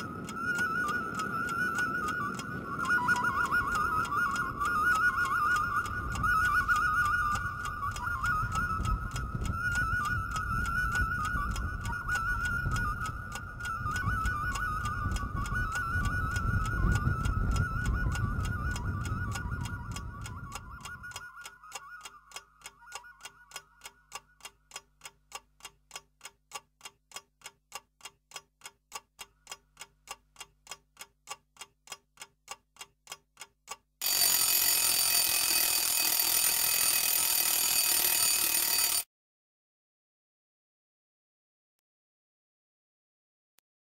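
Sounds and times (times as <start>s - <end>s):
clock ticking: 0.0s - 39.0s
alarm clock bell ringing: 34.0s - 39.1s.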